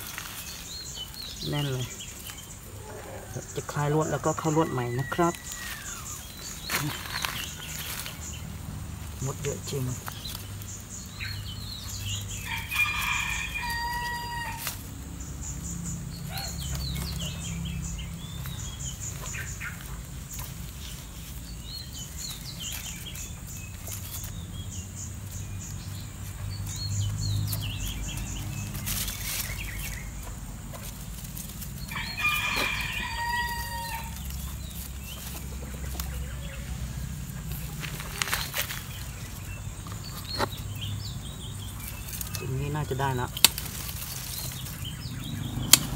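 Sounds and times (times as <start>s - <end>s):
small birds chirping: 0.0s - 45.9s
rooster crowing: 12.4s - 14.8s, 31.8s - 34.3s
wire and branches clicking: 43.3s - 45.9s.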